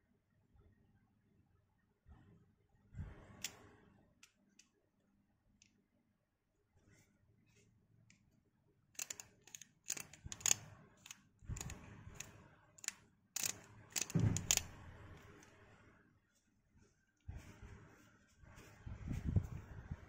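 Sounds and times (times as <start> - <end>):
camera lens clicks and knocks: 13.4 - 14.7.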